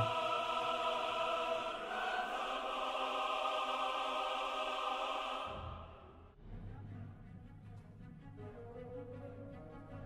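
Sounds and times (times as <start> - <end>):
sustained choir-like chord: 0.0 - 6.0.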